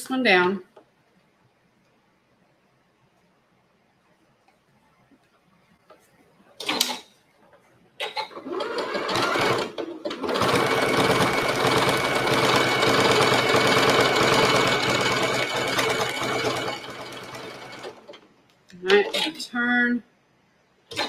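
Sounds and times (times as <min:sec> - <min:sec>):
sewing machine stitching: 0:08.3 - 0:18.2.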